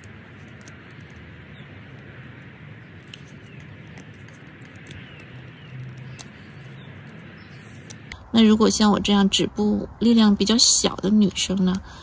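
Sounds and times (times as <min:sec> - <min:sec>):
bird chirps: 0:02.8 - 0:08.0.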